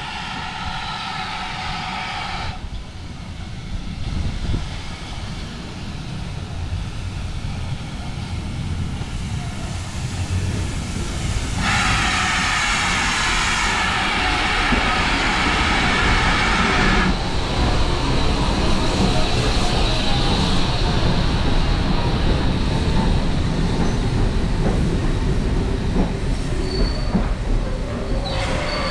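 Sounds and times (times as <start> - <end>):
steam locomotive rumble: 0.0 - 28.9.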